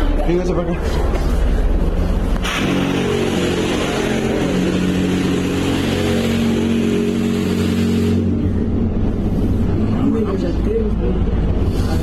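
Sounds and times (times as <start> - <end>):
hiss: 2.4 - 8.2
mechanical buzzing drone: 2.4 - 9.8.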